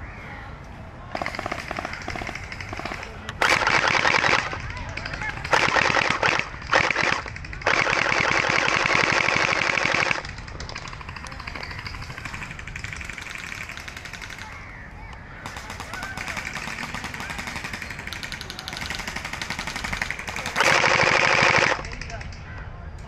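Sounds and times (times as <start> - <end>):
gel blaster firing bursts: 1.2 - 11.3, 15.4 - 21.8.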